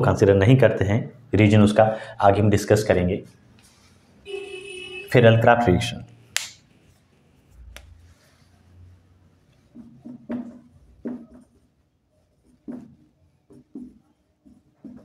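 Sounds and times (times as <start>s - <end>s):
pen writing strokes: 9.5s - 11.8s, 12.4s - 15.0s.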